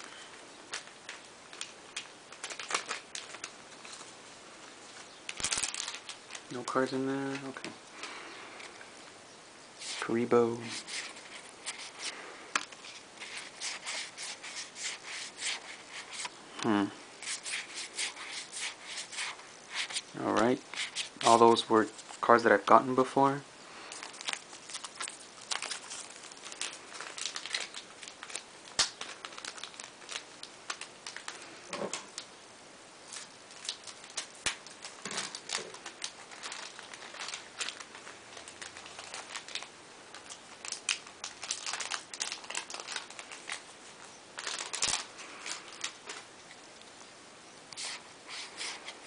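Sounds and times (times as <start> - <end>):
foil wrappers crinkling: 0.0 - 8.8, 9.8 - 16.4, 17.2 - 23.0, 23.8 - 32.3, 33.0 - 47.0, 47.7 - 49.0
cards rustling and sliding: 9.8 - 16.4, 17.2 - 22.2, 47.8 - 49.0.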